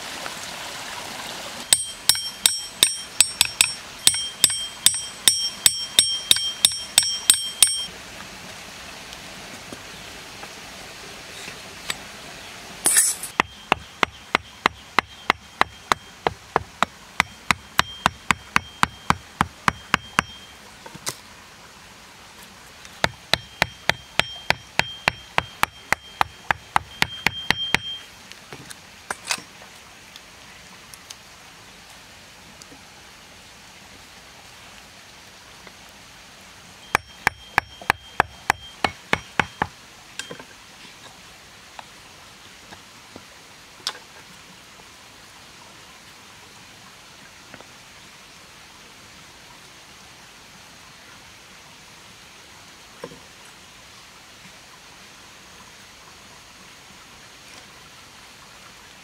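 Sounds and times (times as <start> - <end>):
forest hiss: 0.0 - 6.0, 7.9 - 15.4, 28.0 - 59.0
blade chopping wooden stick: 1.7 - 7.9, 12.9 - 20.4, 23.0 - 28.0, 36.9 - 39.8.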